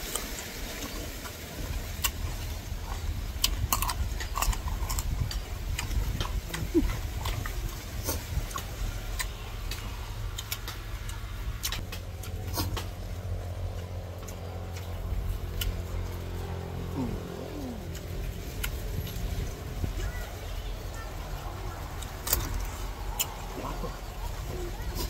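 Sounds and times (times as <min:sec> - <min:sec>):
crunchy chewing and biting: 0:00.0 - 0:20.4, 0:21.2 - 0:25.0
low engine hum: 0:00.0 - 0:25.0.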